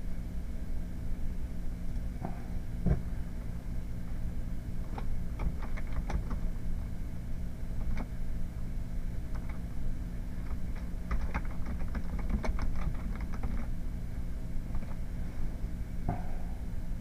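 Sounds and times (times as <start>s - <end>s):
low hum: 0.0s - 17.0s
keyboard keys clicking: 5.4s - 6.4s, 10.4s - 13.7s.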